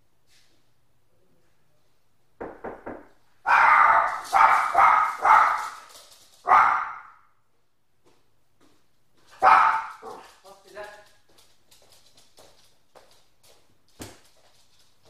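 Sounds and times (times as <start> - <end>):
dog barking loudly: 3.4 - 7.2, 9.3 - 10.4.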